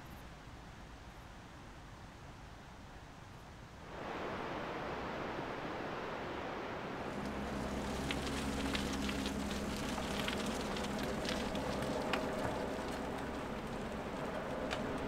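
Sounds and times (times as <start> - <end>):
steady rushing background noise: 3.8 - 15.0
bike tyres crunching on gravel: 7.1 - 15.0.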